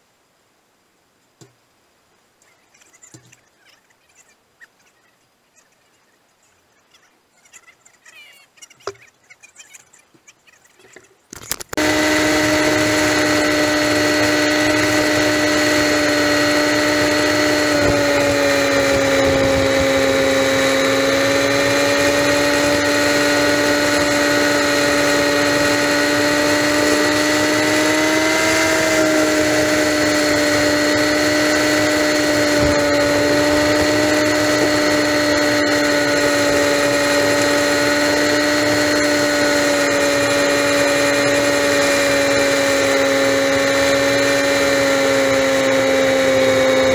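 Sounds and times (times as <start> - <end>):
motorcycle engine cruising: 11.5 - 46.9
rushing wind: 11.8 - 43.5.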